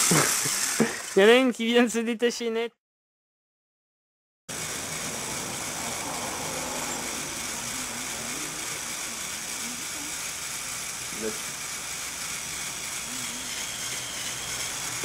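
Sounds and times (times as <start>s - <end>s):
toy motor whirring: 0.0s - 1.3s, 4.5s - 15.0s
constant hiss: 0.0s - 1.5s, 4.5s - 15.0s
faint wavering tones: 5.0s - 11.0s.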